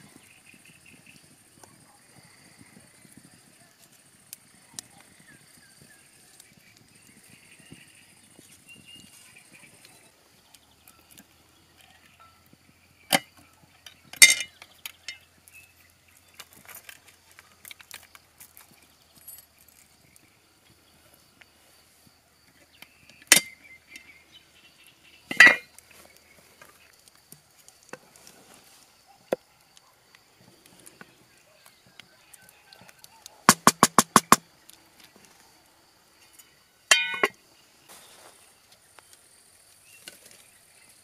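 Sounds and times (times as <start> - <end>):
metal pot clanking: 14.2 - 15.2, 25.3 - 25.7, 36.9 - 37.4
sharp knocks: 33.5 - 34.4.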